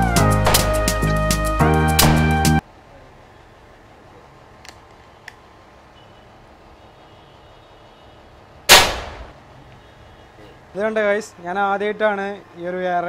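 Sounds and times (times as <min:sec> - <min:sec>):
air rifle shot: 0:00.4 - 0:00.8, 0:02.0 - 0:02.4, 0:08.7 - 0:09.4.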